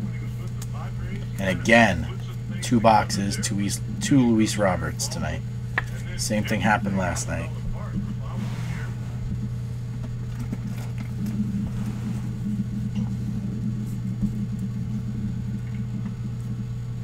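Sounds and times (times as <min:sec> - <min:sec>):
low hum: 0:00.0 - 0:17.0.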